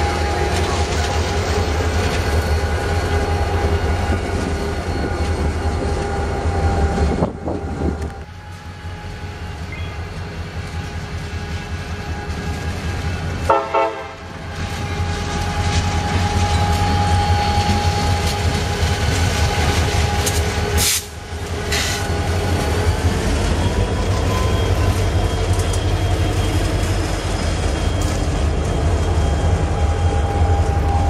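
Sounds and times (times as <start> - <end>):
diesel locomotives rumbling past: 0.0 - 31.0
train horn blast: 13.4 - 18.8.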